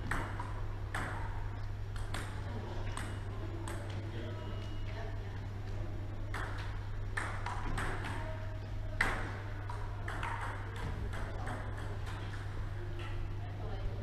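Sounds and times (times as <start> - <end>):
table tennis ball hits: 0.0 - 1.4, 6.3 - 8.2, 9.0 - 12.4
steady low hum: 0.0 - 14.0.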